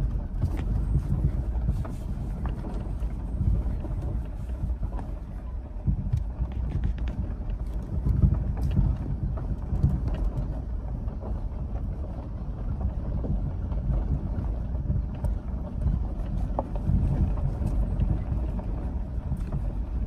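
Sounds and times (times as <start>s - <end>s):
light clicks and rattles: 0.0s - 20.0s
vehicle rumbling: 0.0s - 20.0s
wind buffeting microphone: 0.0s - 20.0s.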